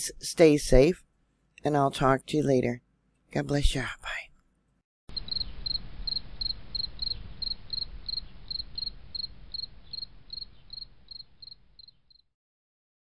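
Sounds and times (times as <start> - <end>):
faint low rumble: 5.1 - 11.8
crickets chirping: 5.1 - 12.2.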